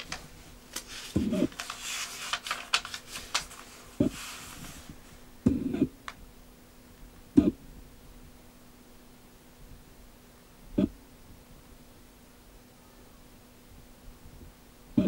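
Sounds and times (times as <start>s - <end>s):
paper pages crinkling: 0.0s - 5.3s.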